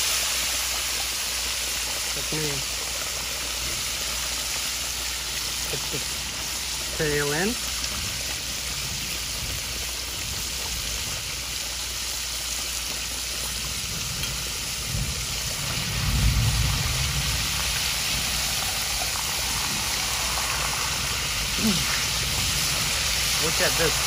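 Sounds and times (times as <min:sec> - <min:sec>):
oil bubbling and sizzling: 0:00.0 - 0:24.0.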